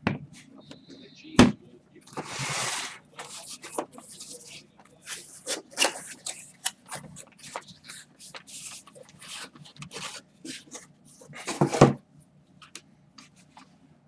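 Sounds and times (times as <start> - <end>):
rustling scrape: 2.1 - 11.8.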